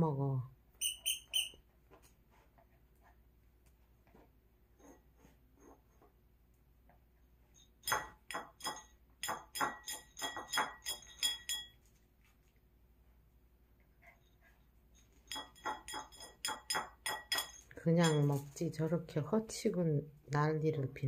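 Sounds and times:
ceramic bowl clinking: 0:07.5 - 0:11.9, 0:15.0 - 0:18.6.

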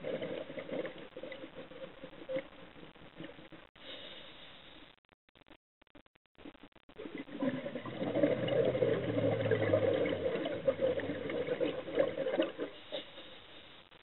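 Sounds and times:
diver exhaling gurgling bubbles: 0:07.1 - 0:13.1.

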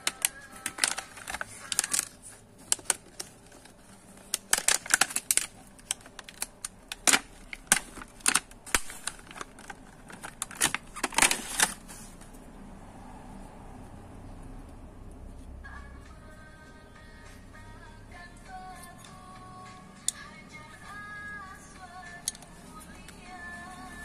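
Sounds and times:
plastic packaging crinkling: 0:00.0 - 0:12.1.

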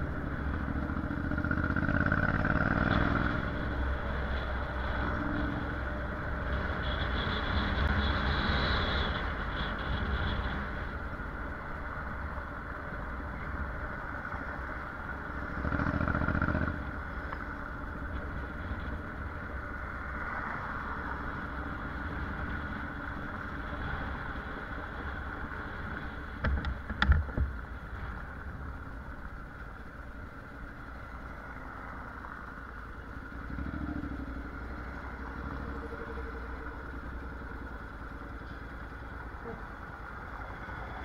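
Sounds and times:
motorcycle engine running: 0:00.0 - 0:09.0, 0:12.2 - 0:19.6, 0:32.2 - 0:40.4
road and wind noise: 0:00.0 - 0:41.0.

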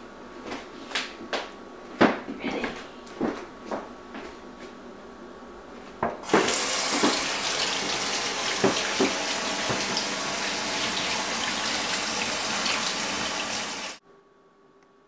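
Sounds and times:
kitchen tap running: 0:06.2 - 0:14.0.

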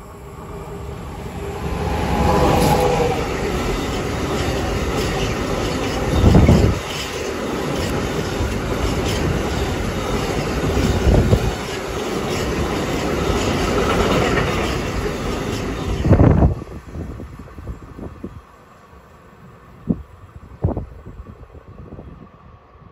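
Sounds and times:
freight train rumbling past: 0:00.0 - 0:22.9.

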